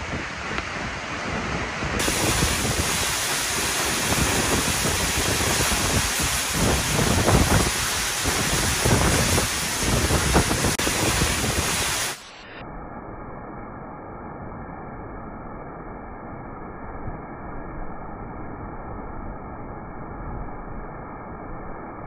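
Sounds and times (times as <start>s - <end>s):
wind gusting on microphone: 0.0s - 12.2s
waterfall rushing: 0.0s - 12.4s.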